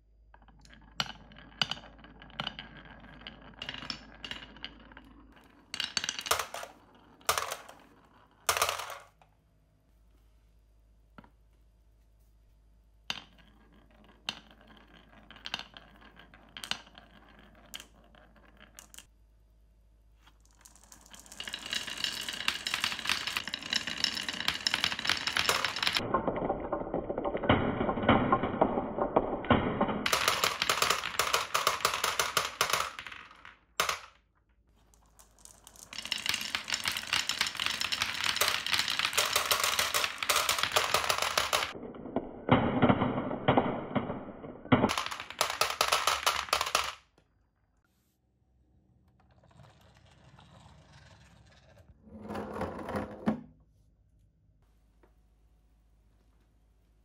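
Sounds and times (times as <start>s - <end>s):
glass marbles rattling down a chute: 20.4s - 34.0s, 34.8s - 41.8s.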